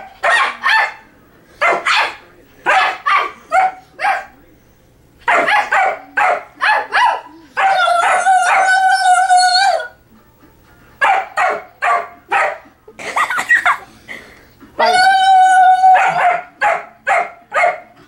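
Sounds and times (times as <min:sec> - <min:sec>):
dog barking: 0:00.0 - 0:01.0, 0:01.6 - 0:04.4, 0:05.3 - 0:08.7, 0:11.0 - 0:12.7, 0:15.9 - 0:17.9
long high cry: 0:14.8 - 0:16.2.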